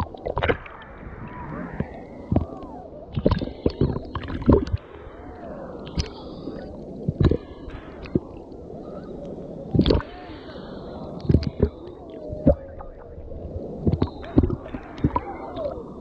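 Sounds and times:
water splashing and bubbling: 0.0 - 5.0, 7.0 - 8.4, 9.8 - 10.1, 12.4 - 15.7
sea water sloshing and gurgling: 0.0 - 8.4.

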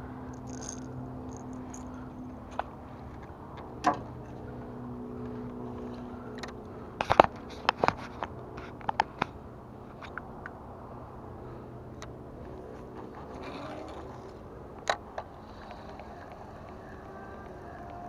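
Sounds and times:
electric boat motor humming: 13.0 - 18.0.

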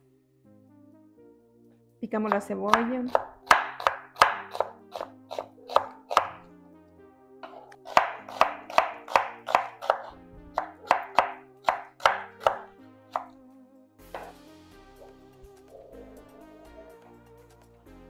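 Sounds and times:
knife chopping on wooden board: 2.3 - 6.4, 7.4 - 13.3, 14.1 - 14.4.

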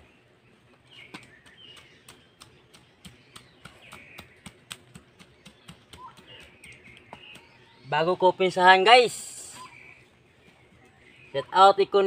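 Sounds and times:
faint bird chirps: 0.0 - 12.0
bamboo stick pounding chili peppers: 1.1 - 7.6.

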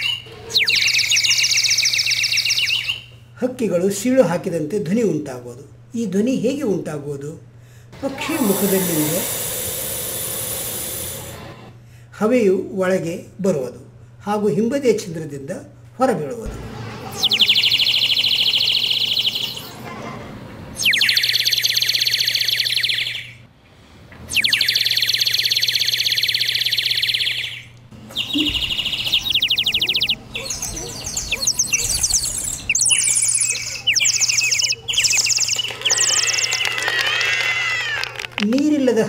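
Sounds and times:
water bird whistle warbling: 0.0 - 3.0, 17.2 - 19.6, 20.8 - 23.4, 24.3 - 27.6, 28.2 - 36.7.

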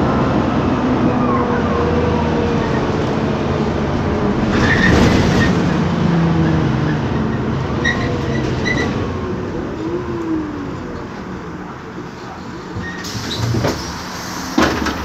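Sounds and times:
bus engine running: 0.0 - 15.0.

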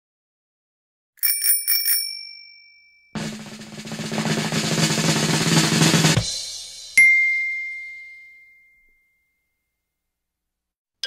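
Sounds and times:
small bell ringing: 1.2 - 3.2, 7.0 - 9.7
drum roll: 3.2 - 7.0.

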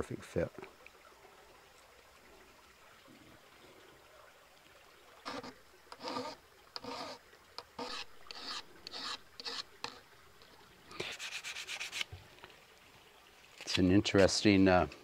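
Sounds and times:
hand rubbing on brass: 5.3 - 7.2, 7.8 - 10.0, 11.0 - 12.1.

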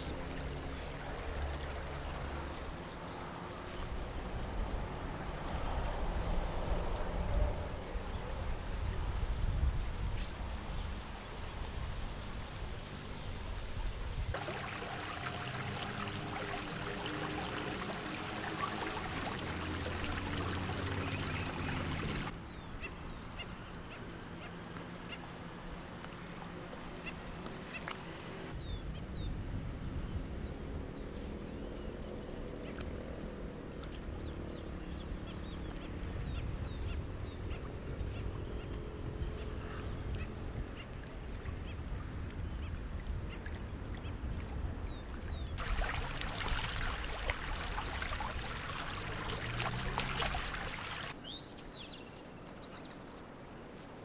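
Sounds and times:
birds chirping: 14.4 - 25.2, 44.8 - 54.0.

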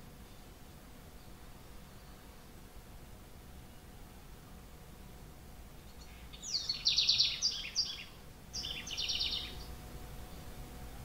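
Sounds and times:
wren singing trills: 5.8 - 10.5.

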